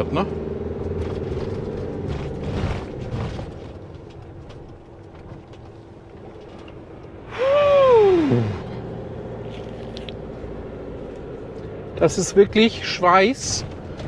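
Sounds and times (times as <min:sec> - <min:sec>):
van engine running: 0:00.0 - 0:14.0
person sighing: 0:07.3 - 0:08.8.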